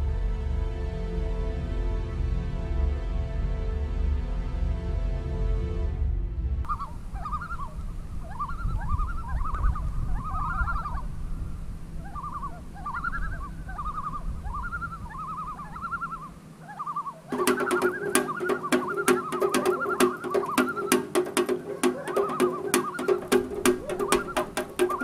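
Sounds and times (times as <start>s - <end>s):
bird chirping: 6.7s - 25.0s
music with sharp strokes: 17.3s - 25.0s.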